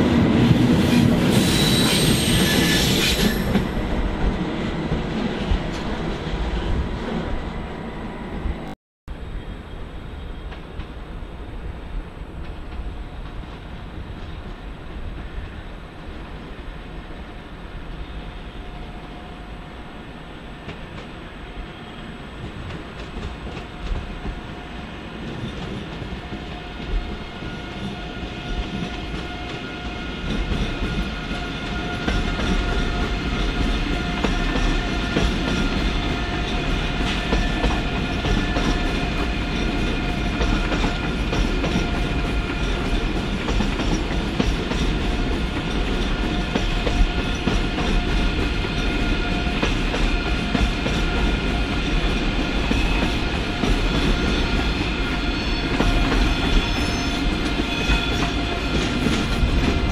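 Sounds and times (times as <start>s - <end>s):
train wheels clacking over rails: 0.0s - 6.8s, 22.4s - 59.9s
electric train whine: 0.0s - 59.9s.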